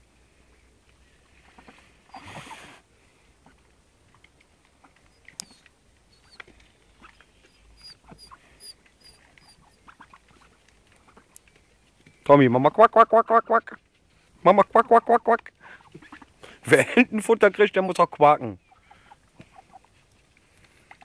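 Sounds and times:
rustle: 0.0 - 21.0
small clicks and pecks: 3.6 - 12.2, 19.4 - 21.0.

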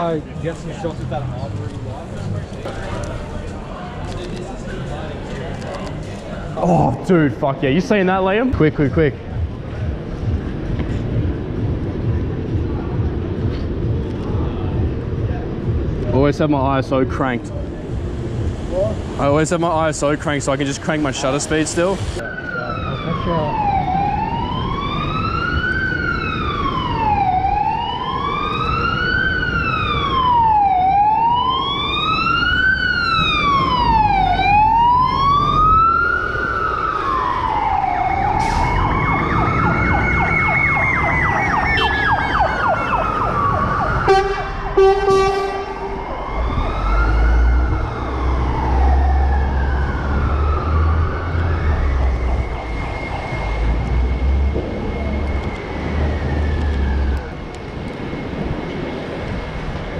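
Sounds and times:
low vehicle engine rumble: 9.0 - 30.4, 32.2 - 59.9
siren wailing: 22.2 - 59.9
steady high siren tone: 22.2 - 59.9
vehicle horn blasts: 41.8 - 42.1, 44.1 - 45.9.

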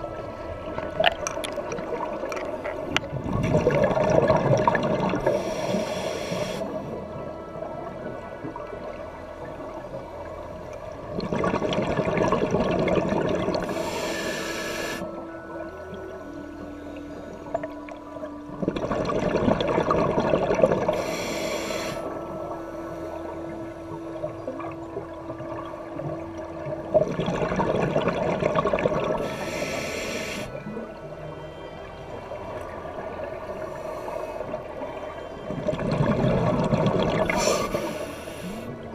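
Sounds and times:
exhaled bubbles rushing: 0.0 - 5.4, 11.0 - 13.8, 18.5 - 21.0, 24.5 - 29.3, 35.4 - 37.9
exhaled bubbles underwater: 0.0 - 31.4, 32.1 - 38.9
low underwater rumble: 0.0 - 38.9
regulator hiss: 5.2 - 6.9, 13.6 - 15.2, 21.0 - 22.2, 29.2 - 30.6, 37.3 - 38.8.

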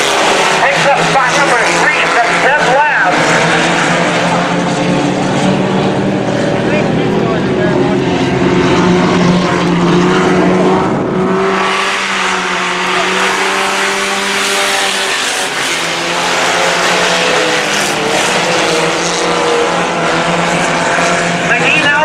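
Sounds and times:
race truck engines: 0.0 - 22.0
rush of engine and tyre noise: 0.0 - 22.0.

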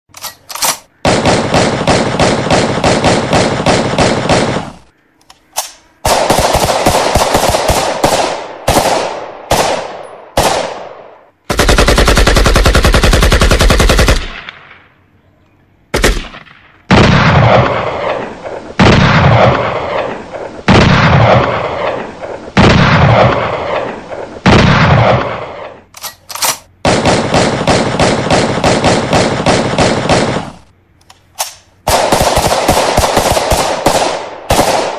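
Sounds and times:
rapid sharp bangs: 1.0 - 4.8, 6.0 - 14.7, 26.8 - 30.7, 31.8 - 34.9.

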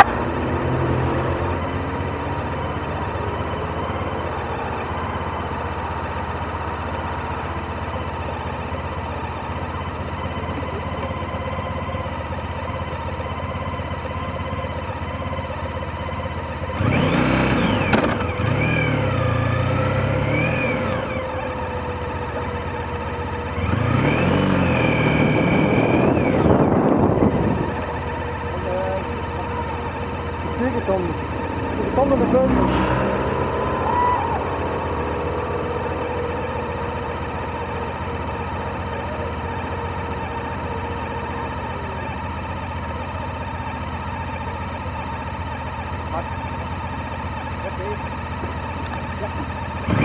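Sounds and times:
engine revving: 0.0 - 6.2, 16.7 - 22.5, 23.1 - 42.8, 47.5 - 50.0
motorcycle engine idling: 0.0 - 50.0.

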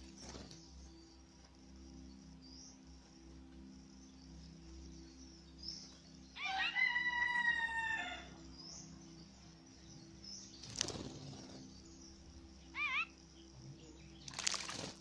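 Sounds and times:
small bird chirping: 0.0 - 15.0
rooster crowing: 6.4 - 8.4.

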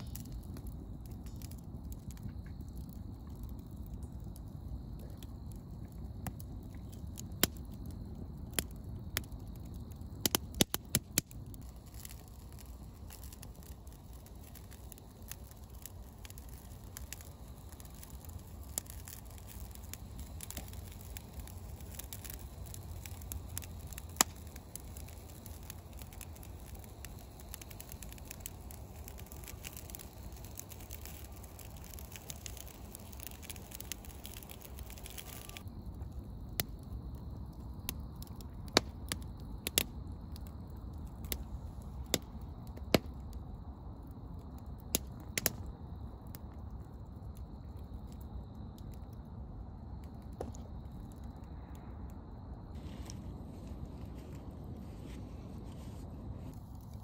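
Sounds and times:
wood fire crackling and popping: 0.0 - 57.0.

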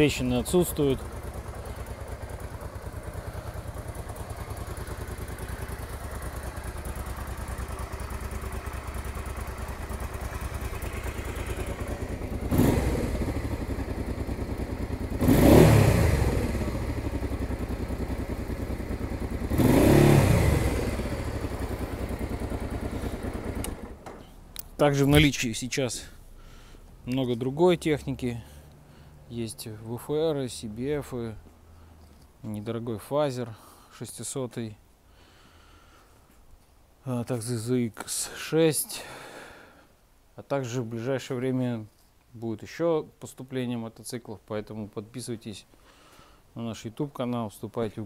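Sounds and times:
motorcycle engine idling and revving: 0.0 - 25.2.

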